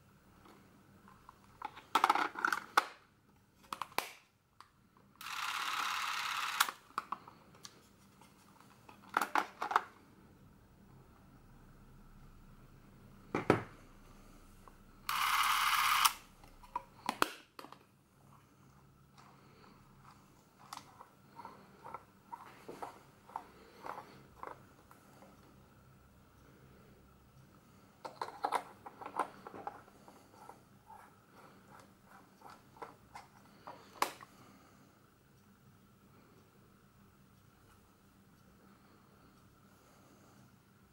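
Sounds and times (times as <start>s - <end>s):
camera mechanical whirr: 5.2s - 6.8s, 15.0s - 16.2s.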